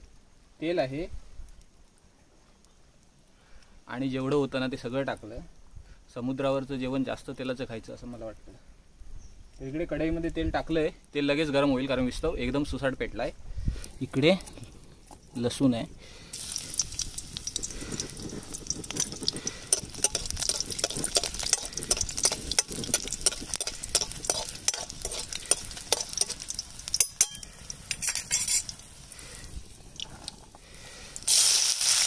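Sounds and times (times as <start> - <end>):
garlic sizzling in hot oil: 14.0 - 32.0
utensil clinking on pan: 18.9 - 28.8.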